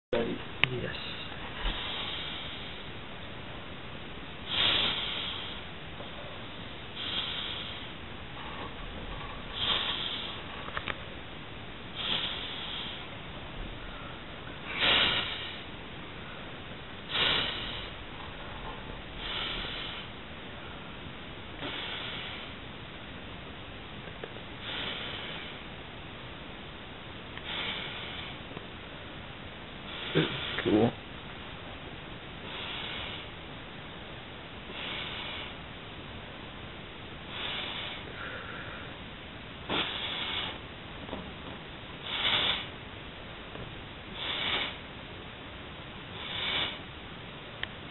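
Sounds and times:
forceful nose breaths: 0:01.2 - 0:03.0, 0:04.4 - 0:11.2, 0:11.9 - 0:21.0, 0:21.6 - 0:22.7, 0:24.6 - 0:25.8, 0:27.4 - 0:28.6, 0:29.8 - 0:31.0, 0:32.4 - 0:33.5, 0:34.6 - 0:35.7, 0:37.2 - 0:39.0, 0:39.6 - 0:41.3, 0:42.0 - 0:42.8, 0:43.5 - 0:45.0, 0:46.0 - 0:46.9
air blown into latex glove: 0:08.6 - 0:10.8, 0:14.6 - 0:15.8, 0:17.0 - 0:20.2, 0:39.6 - 0:40.7, 0:42.0 - 0:42.8, 0:44.1 - 0:44.9.

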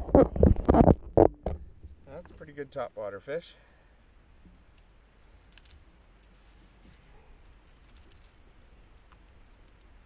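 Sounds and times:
small clicks and ticks: 0:07.4 - 0:10.0.

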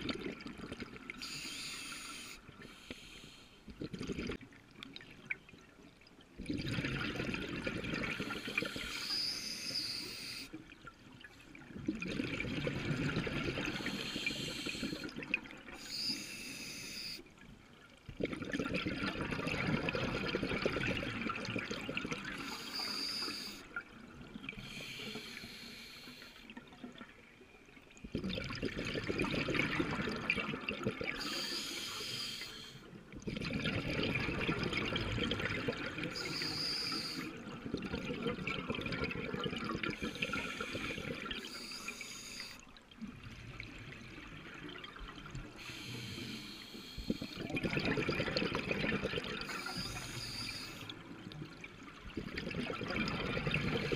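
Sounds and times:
hissing regulator inhalations: 0:01.2 - 0:03.6, 0:08.2 - 0:10.6, 0:13.7 - 0:15.2, 0:15.8 - 0:17.2, 0:22.4 - 0:23.7, 0:24.6 - 0:26.5, 0:31.2 - 0:32.9, 0:36.1 - 0:37.4, 0:39.9 - 0:42.6, 0:45.6 - 0:47.7, 0:49.4 - 0:51.0
bubbling exhaled air underwater: 0:03.7 - 0:04.5, 0:06.4 - 0:10.2, 0:11.5 - 0:16.1, 0:18.1 - 0:25.1, 0:28.0 - 0:31.6, 0:33.1 - 0:53.9.

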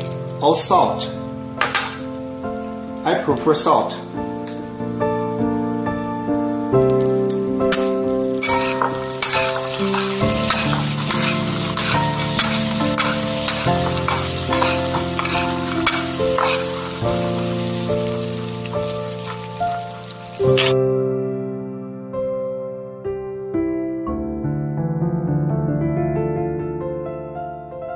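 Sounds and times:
piano music: 0:00.0 - 0:27.9
spoon stirring peanuts in bowl: 0:08.4 - 0:17.1.

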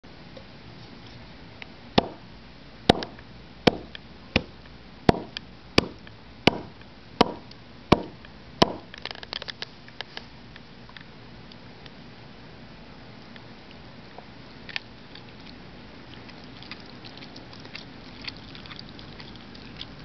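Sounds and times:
cleaver chopping through bone: 0:02.0 - 0:02.2, 0:02.9 - 0:04.5, 0:05.1 - 0:07.4, 0:08.0 - 0:08.9.

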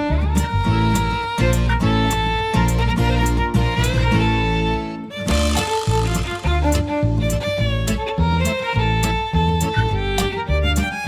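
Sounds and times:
held melody line: 0:05.0 - 0:11.0
pulsing bass beat: 0:05.3 - 0:08.4.

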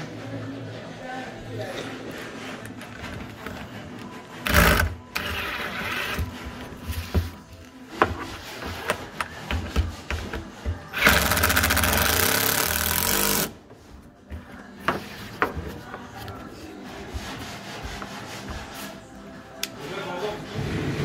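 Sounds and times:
impact driver rattling whirr: 0:04.4 - 0:06.3, 0:10.9 - 0:13.6.

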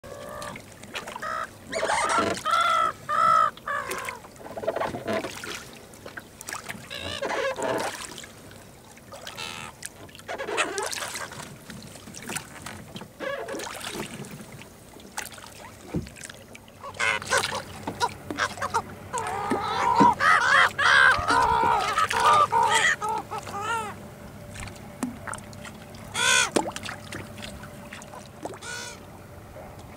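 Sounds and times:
gulls calling: 0:00.0 - 0:04.9, 0:09.2 - 0:11.4, 0:16.8 - 0:29.9.

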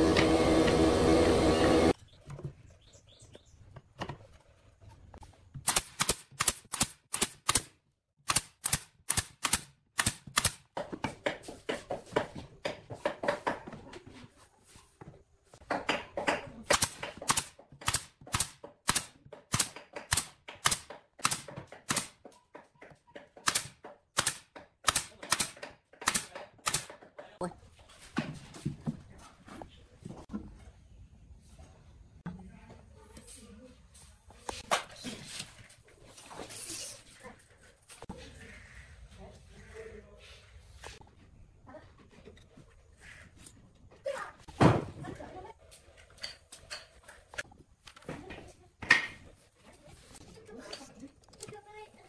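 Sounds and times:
pneumatic nailer firing: 0:05.6 - 0:10.6, 0:16.7 - 0:22.1, 0:23.4 - 0:27.0
boards knocking: 0:10.7 - 0:14.0.

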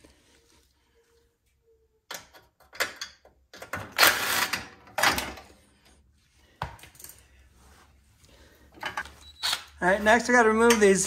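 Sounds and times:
tools and parts clattering: 0:02.1 - 0:05.6, 0:08.7 - 0:09.3.

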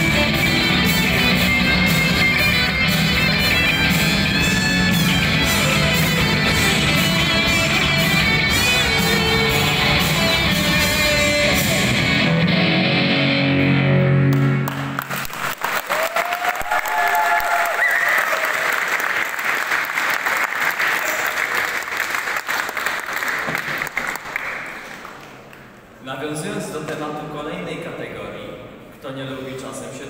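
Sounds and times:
live band with electric guitars: 0:00.0 - 0:15.2
audience applauding: 0:14.3 - 0:25.8.

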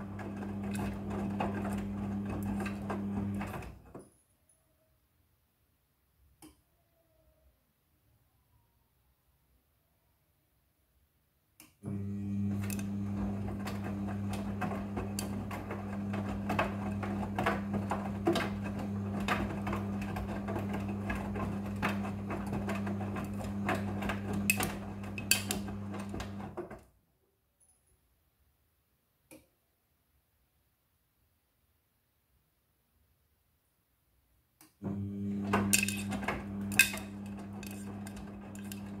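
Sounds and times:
washing machine motor hum: 0:00.0 - 0:04.0, 0:11.8 - 0:26.8, 0:34.8 - 0:39.0.

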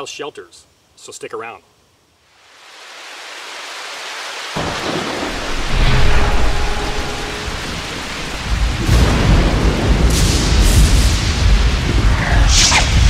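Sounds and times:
heavy rain hiss: 0:00.0 - 0:13.0
thunder rolling: 0:04.6 - 0:13.0.

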